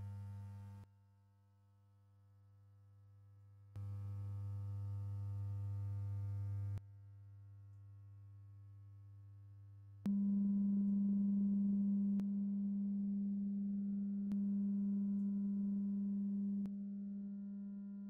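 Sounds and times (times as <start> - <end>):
louder sine test tone: 0.0 - 0.8, 3.8 - 6.8, 10.1 - 18.0
low sine test tone: 0.0 - 0.9, 3.8 - 7.1, 8.7 - 18.0.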